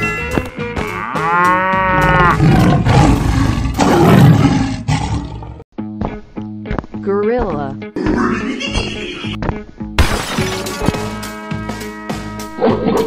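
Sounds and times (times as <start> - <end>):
lion roars: 1.9 - 5.6.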